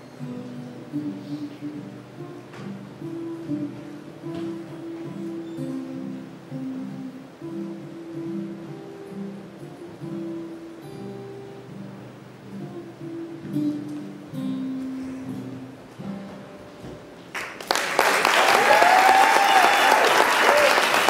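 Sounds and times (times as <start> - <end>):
lap steel guitar: 0.0 - 17.3
acoustic guitar: 0.0 - 17.6
audience applause: 17.3 - 21.0
person whooping: 18.4 - 21.0.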